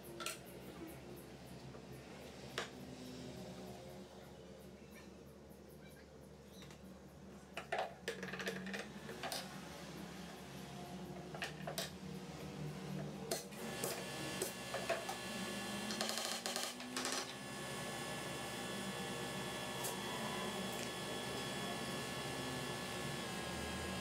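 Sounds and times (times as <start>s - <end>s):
faint low hum: 0.0s - 13.6s.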